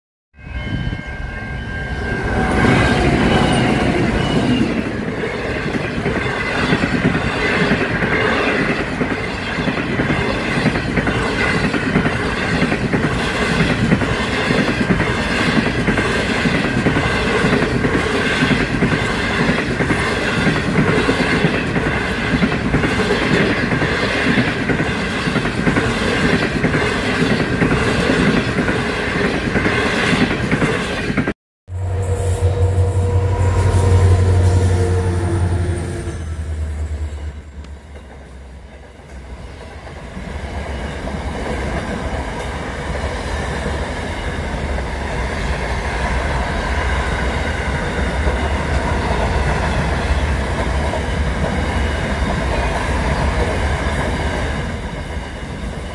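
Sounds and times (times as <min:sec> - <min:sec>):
high ringing tone: 0:00.4 - 0:07.4, 0:31.7 - 0:50.0
train wheels clickety-clack: 0:02.6 - 0:31.3, 0:36.0 - 0:55.9.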